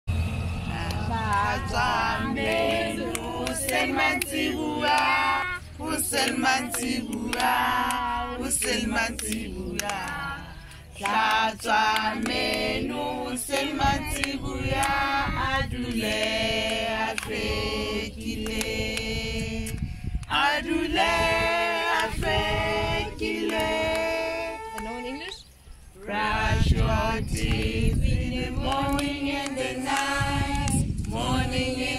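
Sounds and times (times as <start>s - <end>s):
children singing together: 0.7s - 19.7s
hand claps: 0.8s - 5.2s, 6.1s - 15.1s, 16.0s - 17.6s, 18.2s - 20.4s, 23.2s - 25.4s, 26.8s - 28.0s, 28.6s - 31.3s.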